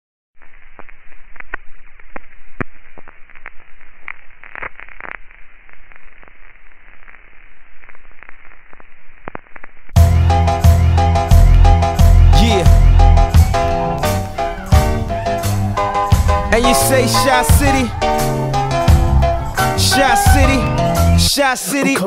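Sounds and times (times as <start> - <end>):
radio static with crackles: 0.4 - 10.0, 10.8 - 22.0
music with heavy beat: 10.0 - 22.0.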